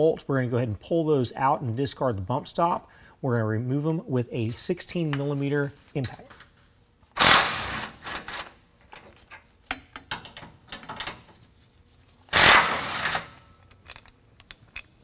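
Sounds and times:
clicks and rattles of tool: 0:13.6 - 0:15.0.

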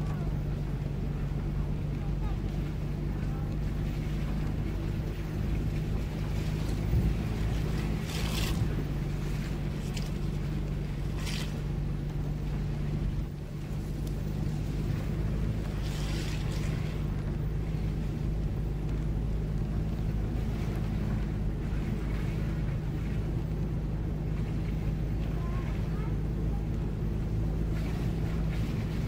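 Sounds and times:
truck engine hum: 0:00.0 - 0:29.0
wind on microphone: 0:03.6 - 0:18.7.

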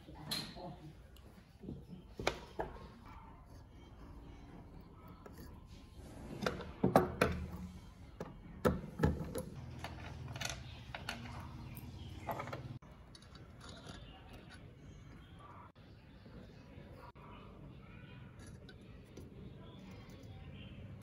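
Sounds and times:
small metal parts clinking: 0:09.2 - 0:14.6.

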